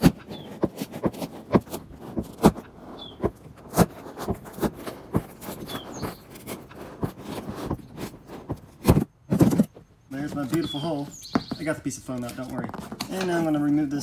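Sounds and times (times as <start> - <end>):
knife sawing through foam: 0.0 - 8.8.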